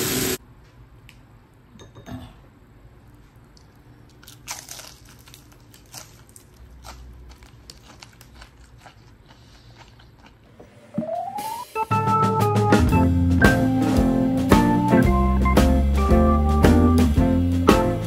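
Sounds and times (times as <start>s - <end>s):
crunchy food being chewed: 3.4s - 10.5s.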